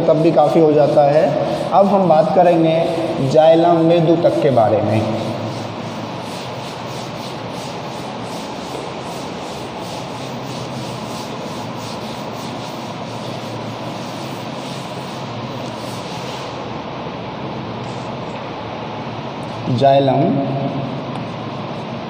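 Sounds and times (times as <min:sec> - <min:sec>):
duster wiping a blackboard: 0:00.0 - 0:16.9
background hiss: 0:00.0 - 0:22.0.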